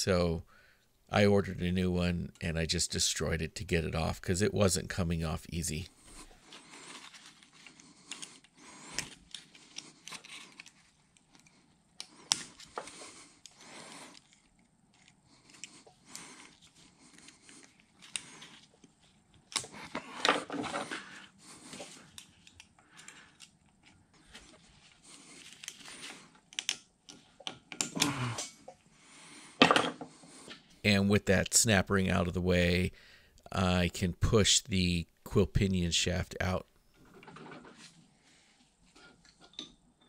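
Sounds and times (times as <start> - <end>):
heavy breathing: 0.5 - 0.9, 5.9 - 10.6, 11.4 - 14.5, 15.3 - 18.7, 19.7 - 23.5, 27.9 - 30.8, 32.9 - 33.5.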